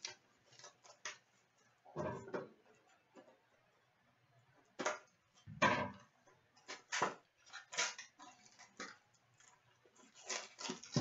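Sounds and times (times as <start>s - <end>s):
plastic wrapper and cardboard crinkling: 0.0s - 1.6s, 6.6s - 11.0s.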